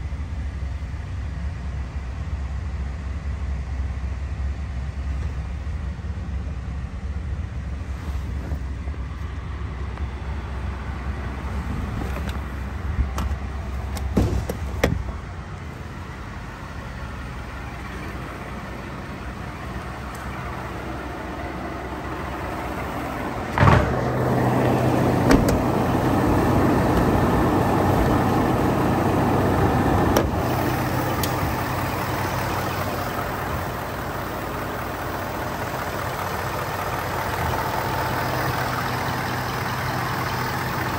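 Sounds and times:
engine idling: 0.0s - 40.9s
clicks and thump: 23.5s - 24.1s.

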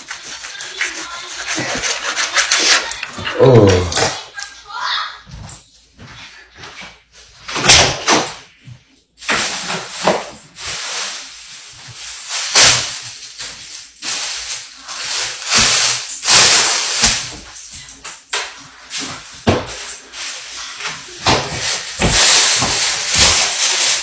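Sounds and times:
rustling: 8.6s - 24.0s.

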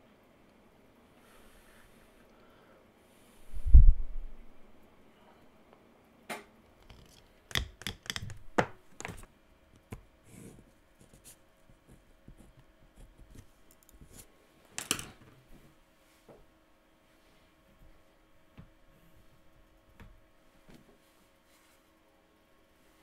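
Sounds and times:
wire clips clicking and tapping: 6.8s - 9.2s.

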